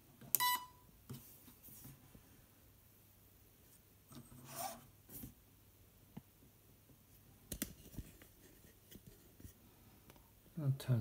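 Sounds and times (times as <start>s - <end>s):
plastic rubbing scrape: 4.2s - 4.9s.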